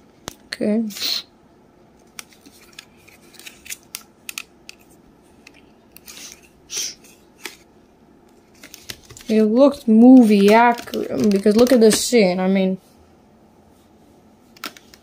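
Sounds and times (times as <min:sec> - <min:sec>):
plastic figures clicking: 0:10.2 - 0:12.0.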